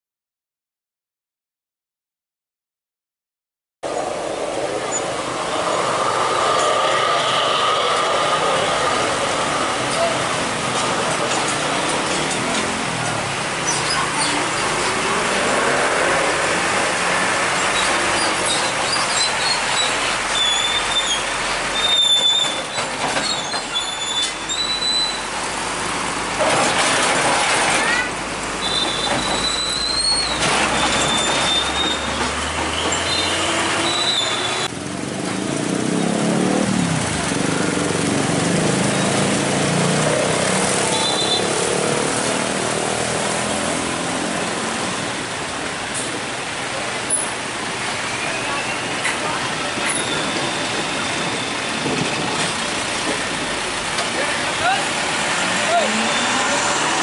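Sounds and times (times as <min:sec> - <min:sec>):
motorcycle engines: 0:03.9 - 0:19.1, 0:30.4 - 0:57.0
truck tyres hissing on wet road: 0:03.9 - 0:57.0
high-pitched squeals: 0:04.6 - 0:10.8, 0:28.6 - 0:34.7.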